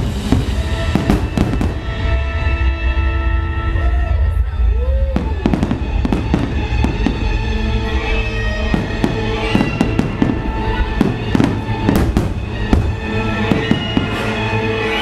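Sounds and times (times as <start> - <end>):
fireworks bangs with crackle: 0.0 - 2.1, 5.2 - 7.4, 8.6 - 15.0
music playing: 0.0 - 15.0.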